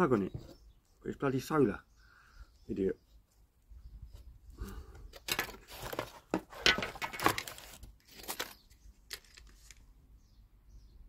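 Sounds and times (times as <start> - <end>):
plastic packaging crinkling: 5.3 - 9.8.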